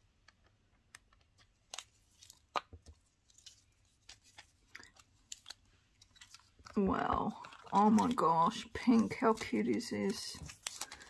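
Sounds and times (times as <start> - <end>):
foil and plastic crinkling: 3.4 - 11.0.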